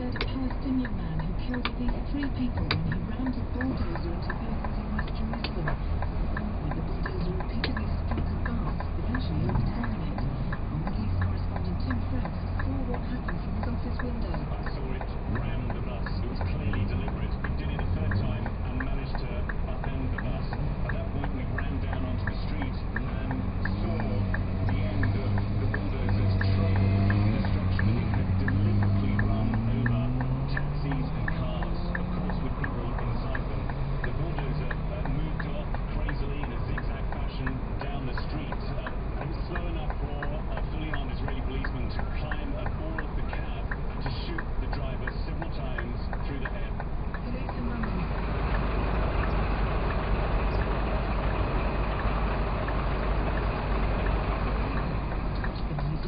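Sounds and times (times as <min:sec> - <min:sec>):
diesel truck engine idling: 0:00.0 - 0:56.0
indicator relay ticking: 0:00.0 - 0:56.0.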